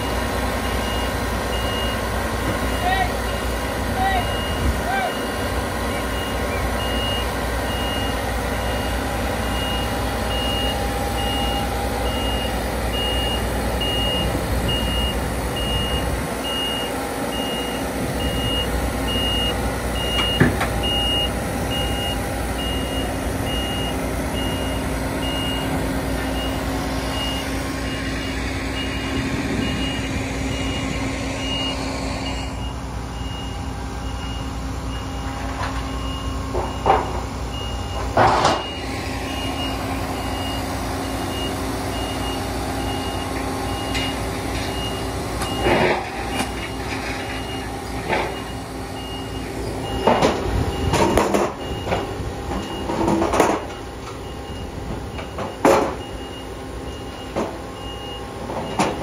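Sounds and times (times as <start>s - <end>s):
combine harvester running: 0.0s - 59.0s
reversing alarm beeping: 0.0s - 59.0s
clunk: 20.1s - 20.9s, 35.2s - 37.3s, 37.9s - 38.8s, 43.4s - 48.5s, 49.9s - 54.3s, 54.9s - 56.2s, 57.0s - 57.6s, 58.5s - 59.0s.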